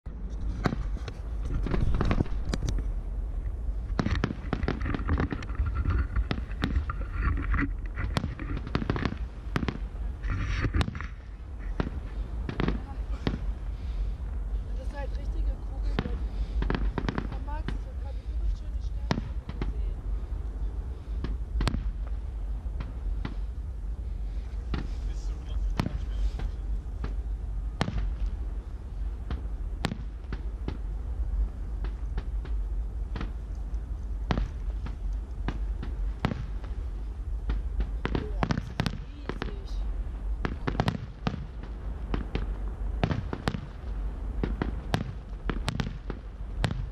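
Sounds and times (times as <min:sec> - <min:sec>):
low rumble: 0:00.0 - 0:46.9
firework shells bursting: 0:00.3 - 0:02.8, 0:03.8 - 0:14.0, 0:40.4 - 0:46.9.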